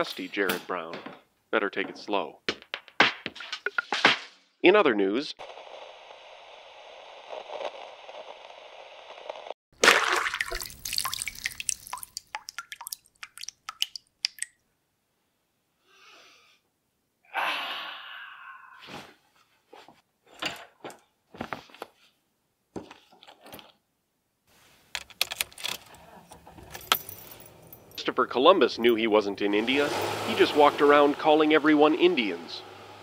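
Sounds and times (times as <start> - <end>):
man yawning: 17.2 - 18.9
car keys jangling: 25.0 - 28.0.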